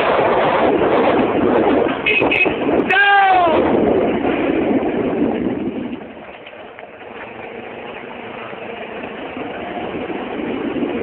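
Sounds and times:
motorcycle engine running: 0:03.6 - 0:11.0.

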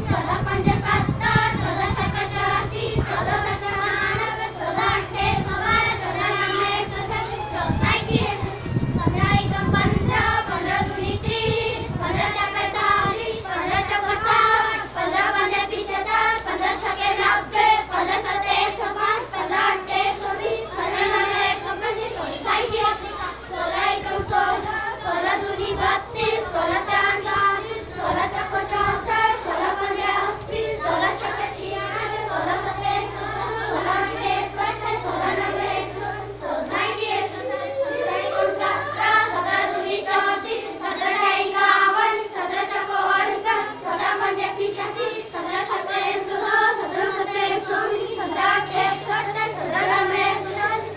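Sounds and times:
children singing together: 0:00.0 - 0:50.9.

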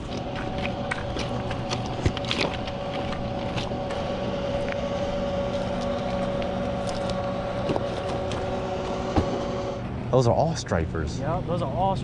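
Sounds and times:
footsteps on gravel: 0:00.0 - 0:09.4
mechanical hum with held tones: 0:00.0 - 0:12.0.

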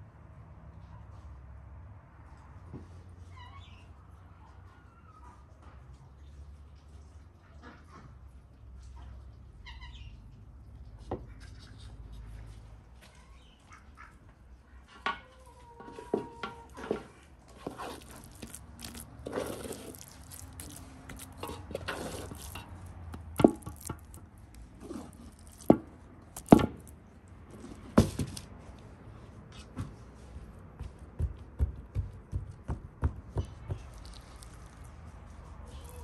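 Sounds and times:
wooden spoon scraping metal pot: 0:15.8 - 0:26.9.

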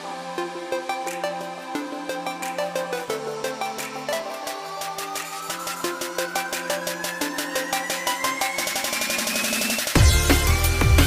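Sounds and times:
music with quick steady beat: 0:00.9 - 0:11.0.

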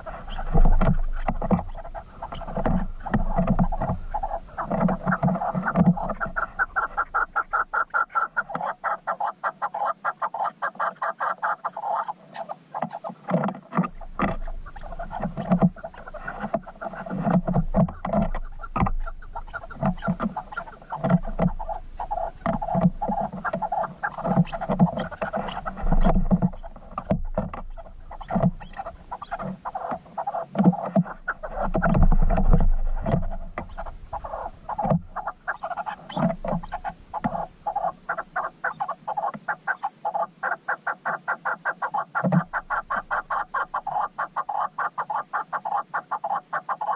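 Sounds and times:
partridge clucking calls: 0:00.0 - 0:46.9.

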